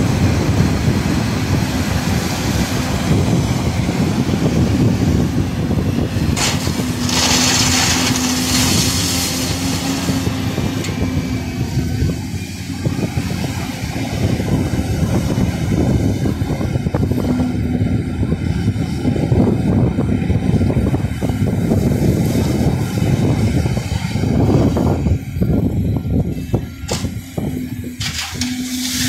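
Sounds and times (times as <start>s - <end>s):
excavator engine and hydraulic hum: 0.0s - 29.0s
crushed stone pouring into truck bed: 6.4s - 10.0s.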